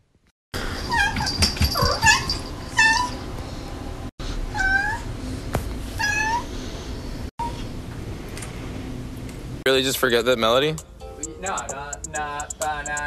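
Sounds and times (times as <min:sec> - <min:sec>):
cat meowing: 0:04.5 - 0:05.0.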